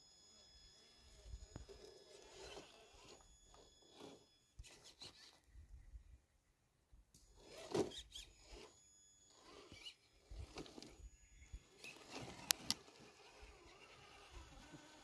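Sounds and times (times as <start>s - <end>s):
toy car tyres scuffing on dirt and rock: 1.2s - 5.4s, 7.3s - 11.0s, 11.6s - 15.0s.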